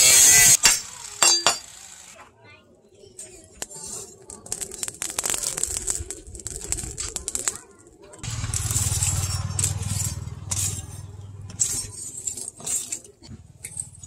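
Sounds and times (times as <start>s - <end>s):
charcoal clinking and crunching: 8.2s - 14.0s.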